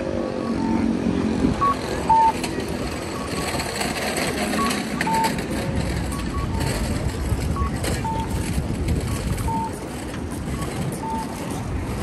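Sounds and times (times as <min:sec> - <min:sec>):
passers-by: 0:00.0 - 0:12.0
street traffic: 0:00.0 - 0:12.0
two-pitch electronic beeps: 0:00.2 - 0:02.4, 0:06.0 - 0:09.8, 0:10.5 - 0:11.6.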